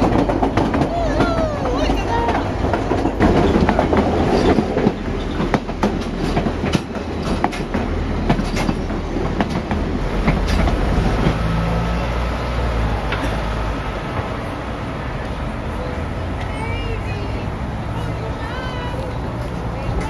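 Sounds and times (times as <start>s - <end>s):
train wheels clacking: 0.0s - 12.0s
train rumbling: 0.0s - 20.0s.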